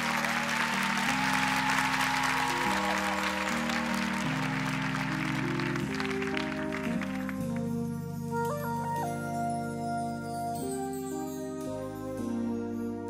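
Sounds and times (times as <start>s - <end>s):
audience applause: 0.0s - 7.7s
keyboard sustained chords: 0.0s - 13.0s.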